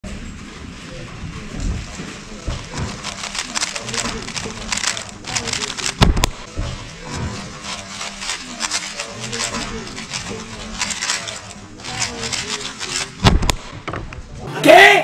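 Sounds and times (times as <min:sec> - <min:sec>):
puzzle cube clicking and rattling: 0:02.6 - 0:06.5, 0:07.3 - 0:13.8.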